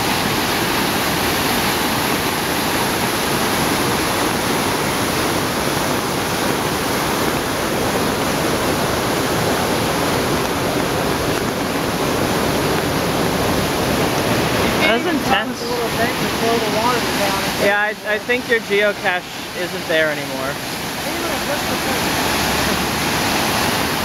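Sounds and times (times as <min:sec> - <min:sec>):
floodwater rushing: 0:00.0 - 0:24.0.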